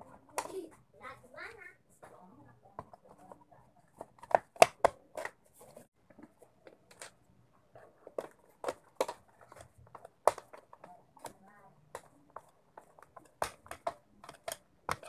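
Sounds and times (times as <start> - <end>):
plastic clicks and taps: 2.8 - 5.4, 7.8 - 15.0.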